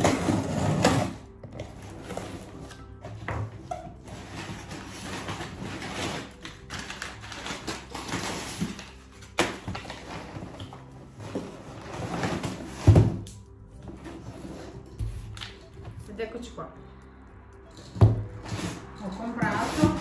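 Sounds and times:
packing paper rustling and crackling: 0:04.0 - 0:13.0.

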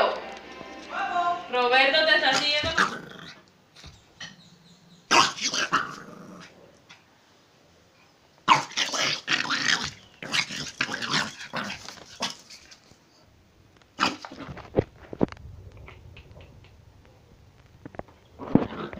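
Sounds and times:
puppy growling and yapping: 0:02.3 - 0:03.5, 0:04.2 - 0:06.6, 0:08.5 - 0:12.8.

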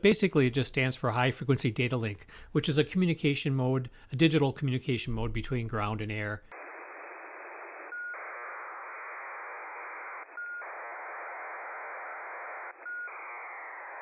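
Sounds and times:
digital data signal burble: 0:06.6 - 0:14.0.

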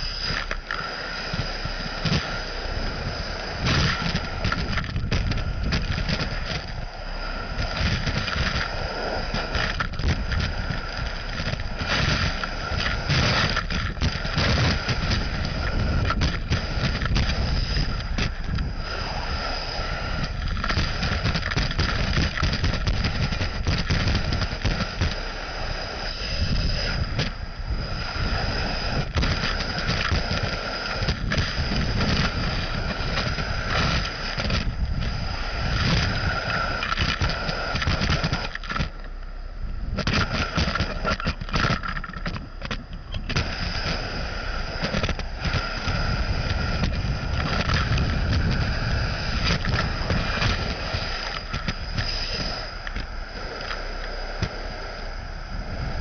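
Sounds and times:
vacuum roaring and whining: 0:00.0 - 0:56.0.

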